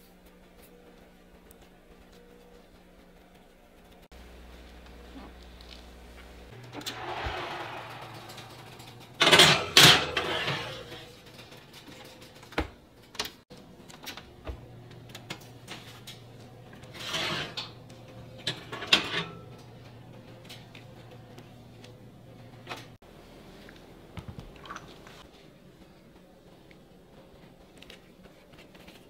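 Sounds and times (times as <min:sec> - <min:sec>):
utensils and dishes clattering: 0:06.6 - 0:14.2, 0:15.0 - 0:21.1.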